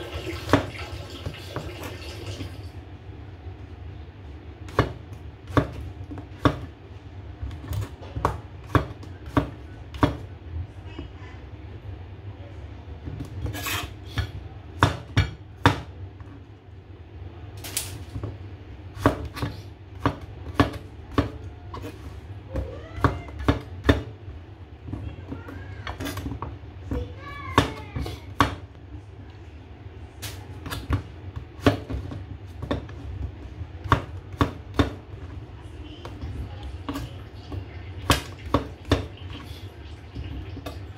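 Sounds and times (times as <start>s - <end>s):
knife chopping on cutting board: 4.7s - 6.7s, 7.5s - 10.2s, 19.0s - 22.1s, 30.6s - 35.0s.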